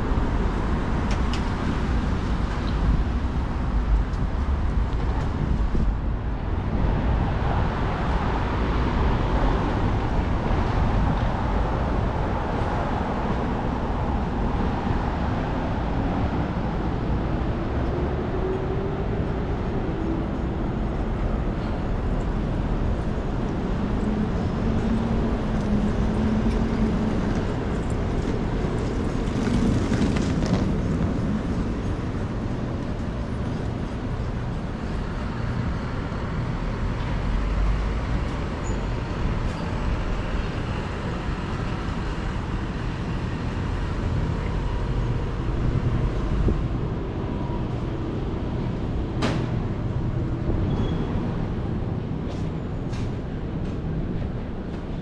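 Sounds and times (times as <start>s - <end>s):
traffic rumble: 0.0s - 55.0s.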